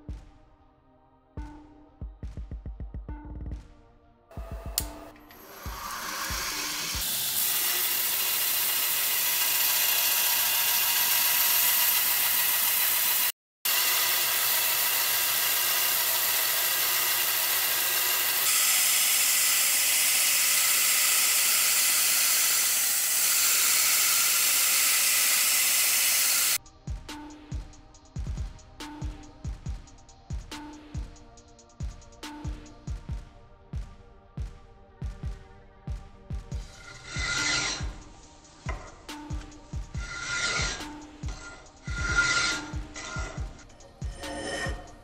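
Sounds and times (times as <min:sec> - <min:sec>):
belt grinder grinding steel: 0:04.7 - 0:26.6, 0:36.7 - 0:45.0.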